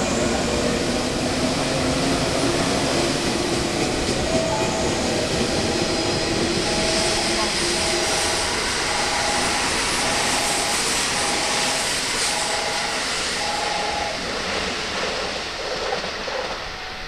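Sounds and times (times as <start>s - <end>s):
train wheel and running noise: 0.0s - 17.0s
two-tone chime: 4.3s - 5.3s, 6.6s - 14.2s.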